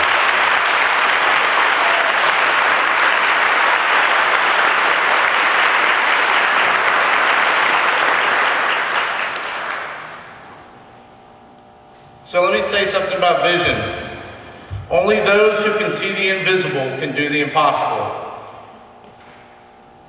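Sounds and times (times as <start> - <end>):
crowd applauding: 0.0 - 10.5.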